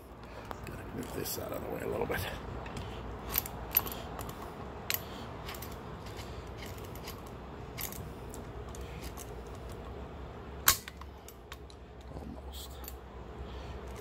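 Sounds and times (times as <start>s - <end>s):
pliers clinking and scraping on metal: 3.3s - 9.8s.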